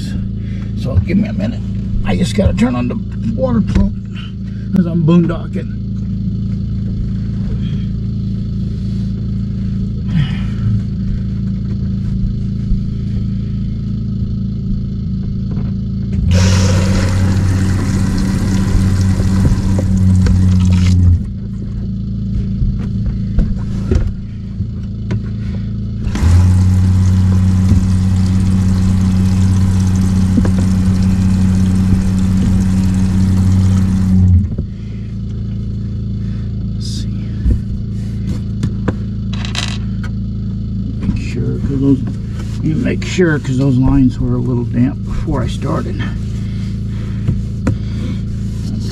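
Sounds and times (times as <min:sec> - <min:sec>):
steady low hum: 0:00.0 - 0:48.9
water pump humming: 0:16.1 - 0:21.5, 0:23.9 - 0:36.4
water hissing: 0:16.3 - 0:21.1, 0:26.1 - 0:34.3.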